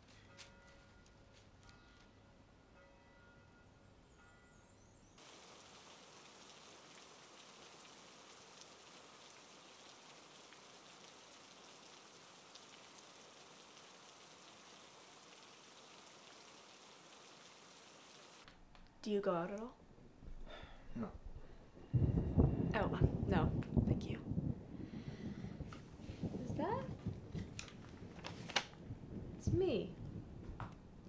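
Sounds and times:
rain hiss with dripping ticks: 0:05.2 - 0:18.9, 0:24.6 - 0:30.8.

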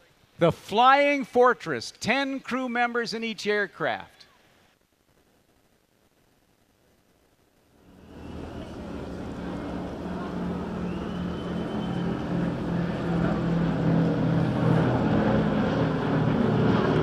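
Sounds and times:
propeller aircraft engines droning: 0:07.8 - 0:17.0.

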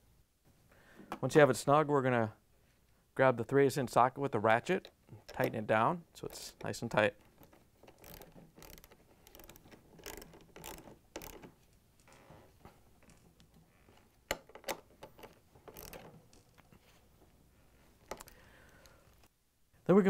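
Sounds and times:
ratchet clicking: 0:06.2 - 0:11.5, 0:15.1 - 0:16.1, 0:18.1 - 0:18.4.

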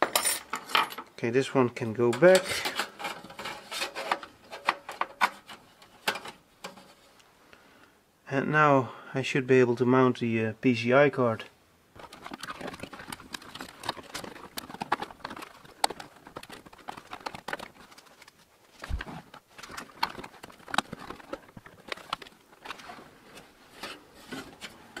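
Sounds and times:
clicks and scrapes of computer card: 0:02.4 - 0:07.0.

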